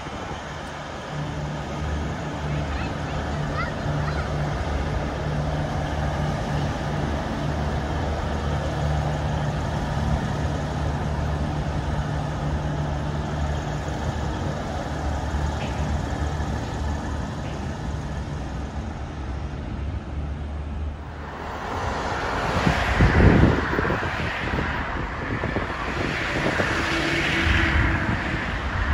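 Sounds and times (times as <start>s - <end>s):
diesel train engine hum: 0.0s - 28.9s
wheel and rail noise: 0.0s - 28.9s
wind buffeting microphone: 21.1s - 28.9s.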